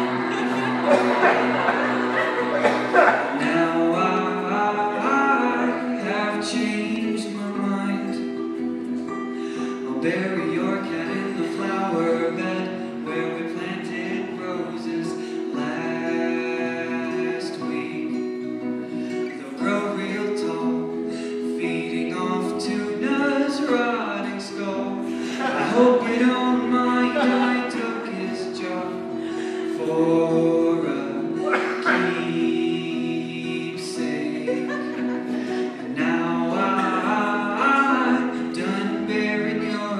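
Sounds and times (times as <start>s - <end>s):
people singing: 0.0s - 7.4s, 21.6s - 39.9s.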